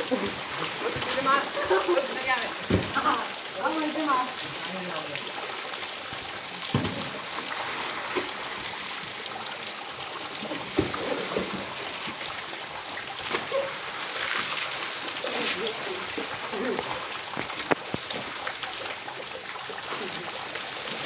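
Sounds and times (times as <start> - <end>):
bare feet splashing in water: 0.0 - 3.9, 13.1 - 18.4
rain falling: 0.0 - 21.0.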